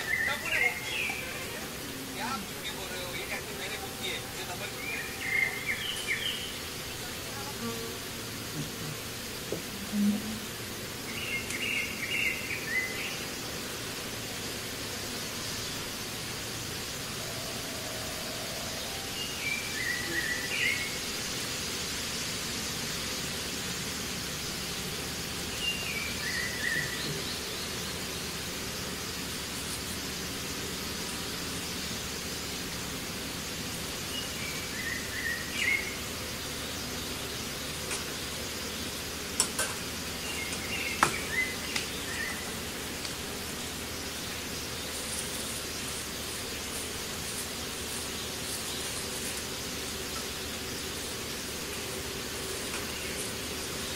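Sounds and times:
steady hiss: 0:00.0 - 0:53.9.

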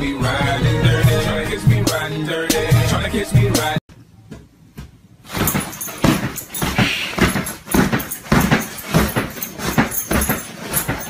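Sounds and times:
dog pawing at a sheet: 0:05.3 - 0:11.0.

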